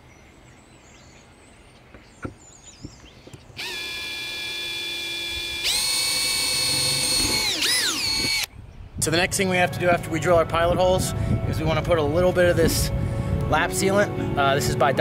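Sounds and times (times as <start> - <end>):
drill clicks: 3.3 - 8.5
drill motor whine: 3.6 - 8.5.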